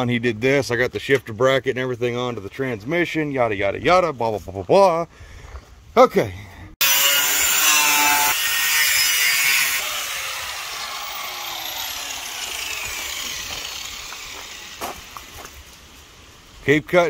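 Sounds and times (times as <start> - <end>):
angle grinder cutting sheet metal: 6.8 - 15.4.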